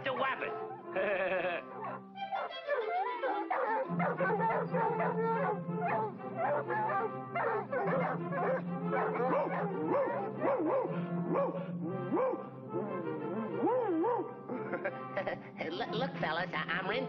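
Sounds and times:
orchestral background music: 0:00.0 - 0:17.0
cartoon dog barking and yelping: 0:01.8 - 0:12.5.

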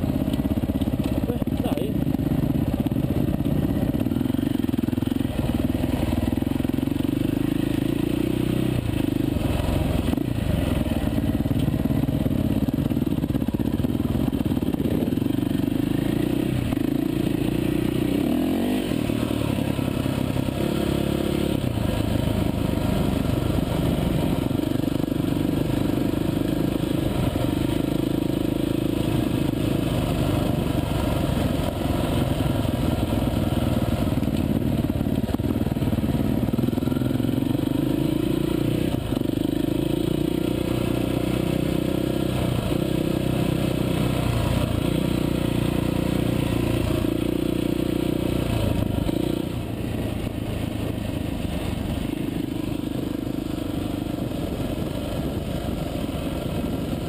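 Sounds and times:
dirt bike engine revving: 0:13.8 - 0:23.1.

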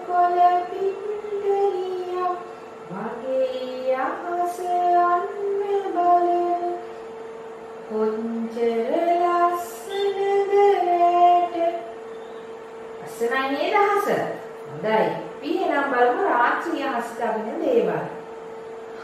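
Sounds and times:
woman singing slowly: 0:00.0 - 0:06.8, 0:07.9 - 0:12.0
steady hum: 0:00.0 - 0:19.0.

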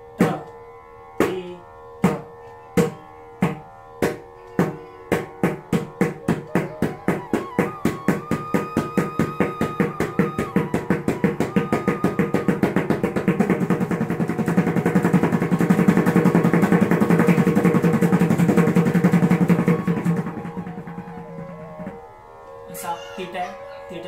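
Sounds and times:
drum finger strokes roll: 0:04.6 - 0:22.0.

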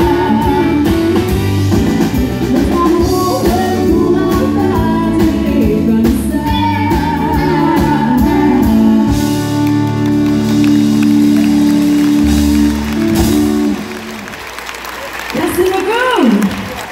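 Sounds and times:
woman singing country song: 0:00.0 - 0:01.4, 0:02.0 - 0:09.6.

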